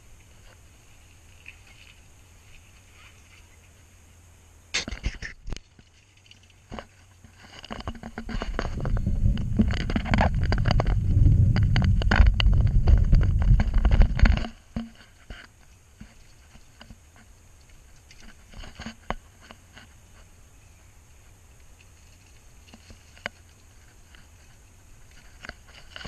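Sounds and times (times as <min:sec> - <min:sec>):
bicycle rattling over dirt path: 0:05.8 - 0:20.0.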